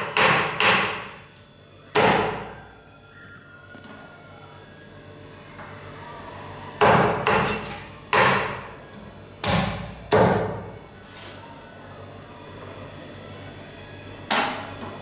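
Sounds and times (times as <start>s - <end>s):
cleaver chopping on wooden block: 0.0s - 1.0s.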